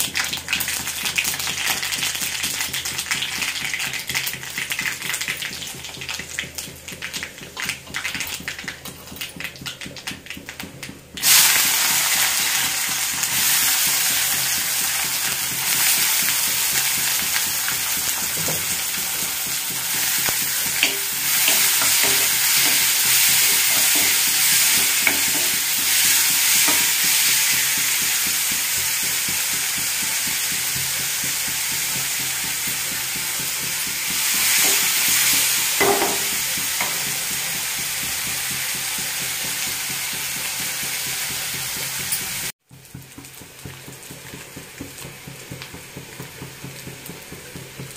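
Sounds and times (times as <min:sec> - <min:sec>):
hot oil crackling and popping: 0:00.0 - 0:47.9
onions sizzling in oil: 0:00.0 - 0:47.9
wooden spatula stirring: 0:12.7 - 0:27.6.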